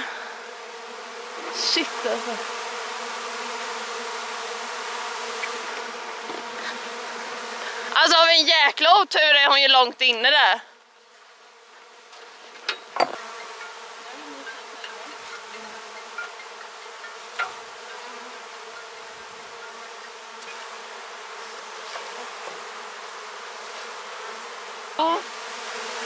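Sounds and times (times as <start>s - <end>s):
bees buzzing: 0.0s - 26.0s
sharp knocks: 12.6s - 13.2s.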